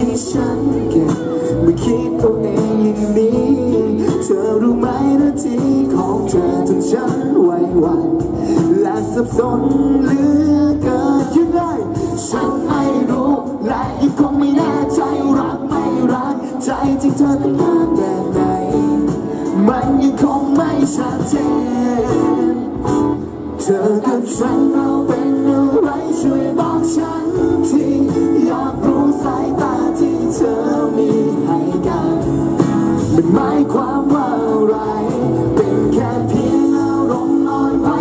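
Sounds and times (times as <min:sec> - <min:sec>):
man singing into microphone: 0:00.0 - 0:38.0
pop backing band over loudspeakers: 0:00.0 - 0:38.0.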